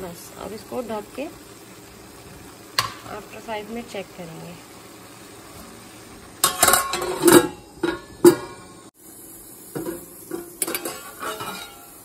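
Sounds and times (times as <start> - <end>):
glass lid clanking on pan: 6.4 - 8.8, 9.7 - 12.0
metal utensil scraping in pan: 6.4 - 8.9, 9.8 - 12.0.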